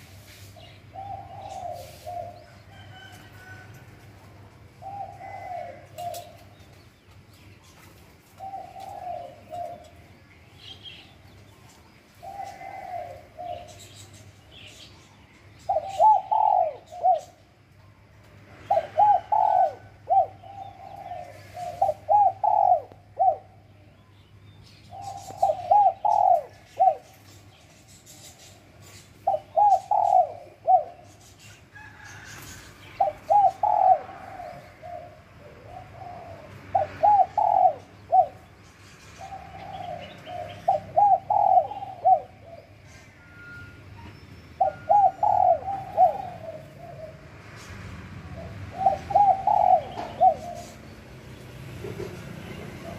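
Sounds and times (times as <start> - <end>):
dove cooing: 0.0 - 6.9, 8.2 - 14.7, 15.6 - 17.6, 18.5 - 23.8, 24.8 - 43.7, 44.6 - 52.9.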